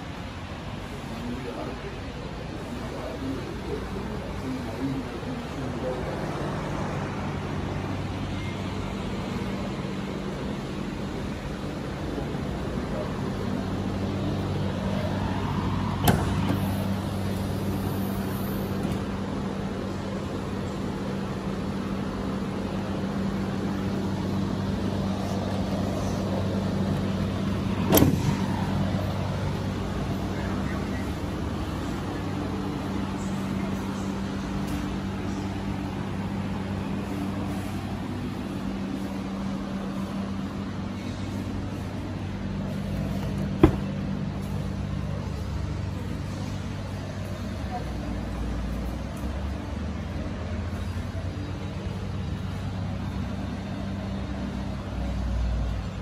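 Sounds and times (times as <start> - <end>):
truck engine idling: 0.0 - 56.0
sharp knocks: 43.6 - 43.9.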